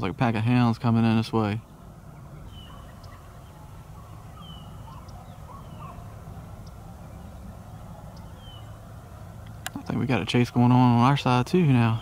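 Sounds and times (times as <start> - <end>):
steady low rumble: 0.0 - 12.0
distant hounds baying: 1.7 - 9.9.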